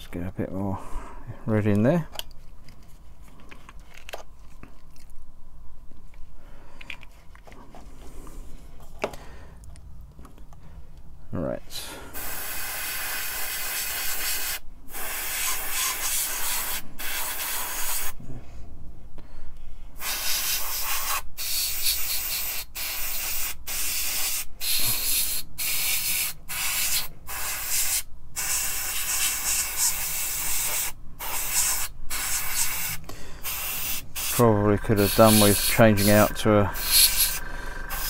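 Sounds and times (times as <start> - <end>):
airbrush air hiss: 12.1 - 18.2, 20.0 - 38.0.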